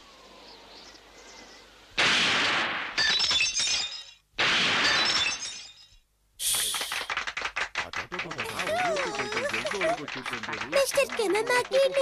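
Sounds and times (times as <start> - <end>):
cartoon glass shattering: 2.0 - 6.0.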